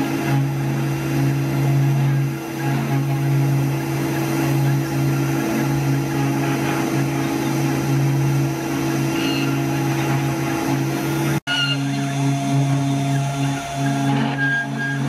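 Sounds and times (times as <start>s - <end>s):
router motor hum and whine: 0.0s - 15.0s.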